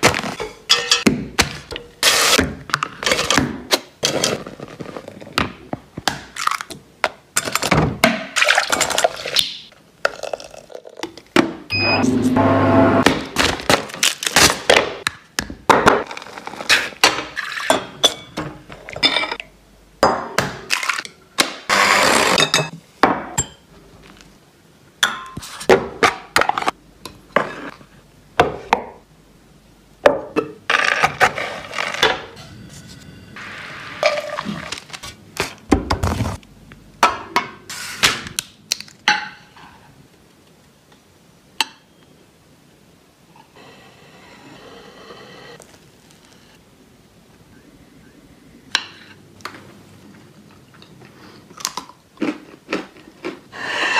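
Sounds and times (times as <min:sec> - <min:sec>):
metal utensils clinking and knocking: 0:00.6 - 0:01.1.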